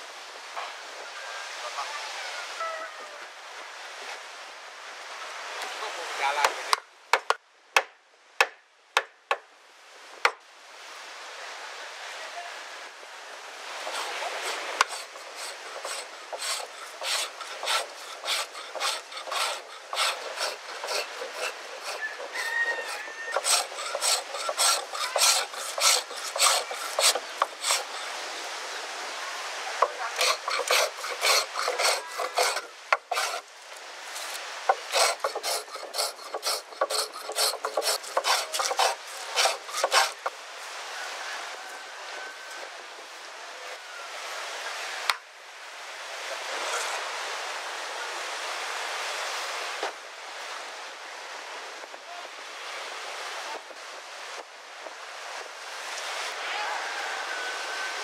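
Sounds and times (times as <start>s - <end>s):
hand tool scraping wood: 13.8s - 28.2s, 29.8s - 33.5s, 34.1s - 40.3s.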